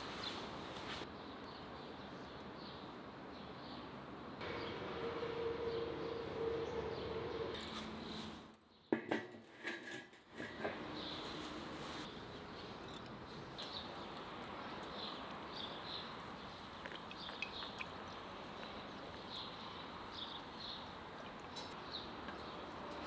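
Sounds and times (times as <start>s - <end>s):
small birds chirping: 0.0s - 4.9s, 10.9s - 23.0s.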